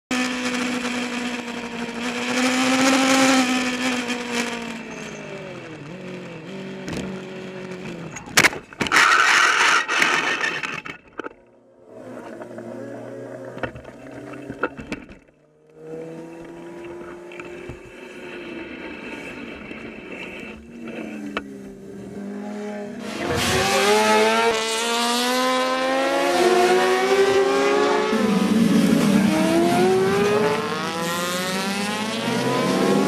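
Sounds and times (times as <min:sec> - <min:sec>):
racing engines passing: 0:15.7 - 0:33.0.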